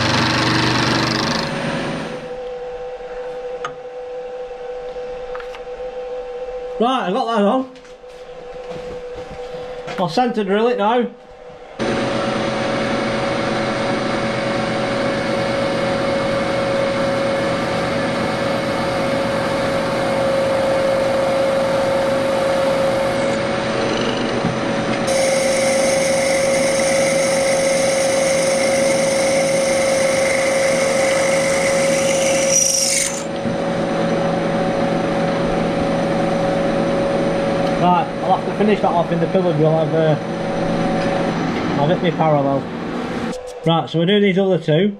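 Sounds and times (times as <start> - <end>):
drill cutting metal: 0.0 - 2.2, 25.0 - 33.4
motor whine: 0.0 - 6.8, 11.3 - 43.7.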